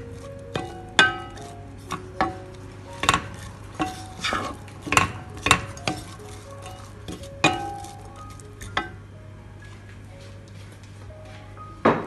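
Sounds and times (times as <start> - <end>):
wooden spatula scraping pot: 0.0 - 9.0
spatula clacks: 0.2 - 9.0.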